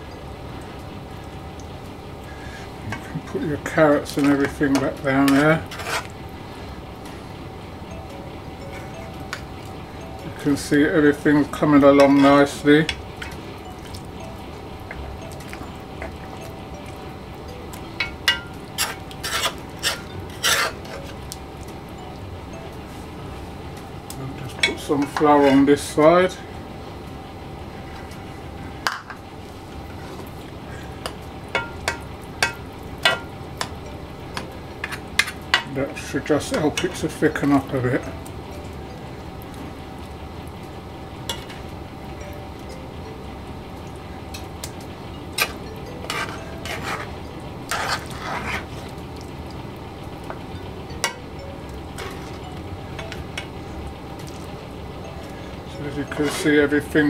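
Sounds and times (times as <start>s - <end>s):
low background noise: 0.0s - 57.0s
steady low hum: 0.0s - 57.0s
metal ladle scraping a metal pot: 5.3s - 6.1s, 18.3s - 21.0s, 46.0s - 48.9s
spoon stirring stew: 17.7s - 21.4s, 45.4s - 49.5s, 51.9s - 52.4s, 56.1s - 56.8s.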